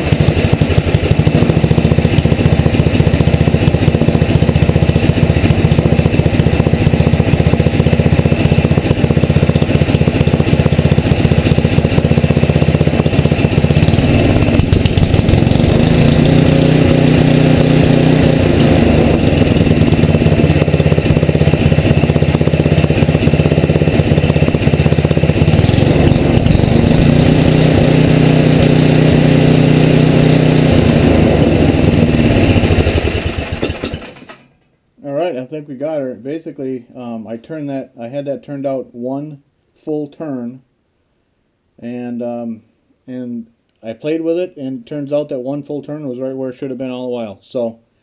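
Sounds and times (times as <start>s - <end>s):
small engine idling: 0.0s - 34.6s.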